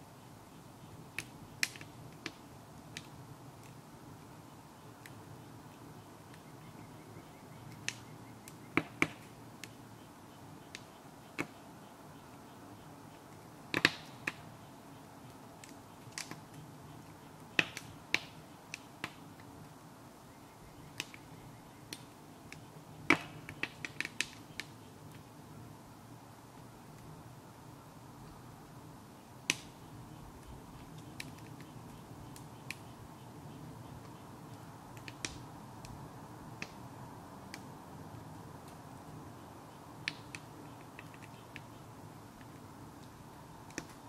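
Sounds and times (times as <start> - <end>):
wood fire crackling and popping: 1.0 - 6.4, 7.6 - 9.8, 13.3 - 14.5, 15.2 - 19.8, 20.9 - 21.2, 21.9 - 25.3, 29.4 - 33.1, 33.8 - 39.3, 40.0 - 44.0.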